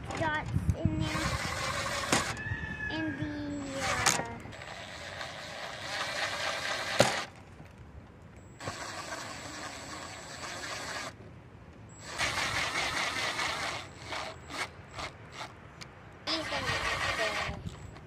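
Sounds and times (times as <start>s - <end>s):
cordless drill driving screws: 1.0s - 2.4s, 3.6s - 7.3s, 8.6s - 11.2s, 12.0s - 15.6s, 16.3s - 17.8s.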